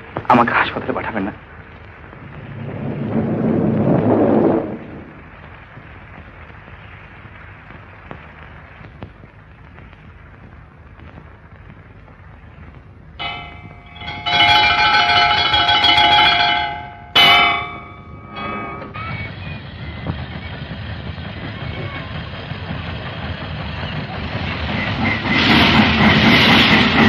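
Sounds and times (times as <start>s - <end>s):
film hiss: 0.0s - 15.4s
rumble: 0.0s - 27.0s.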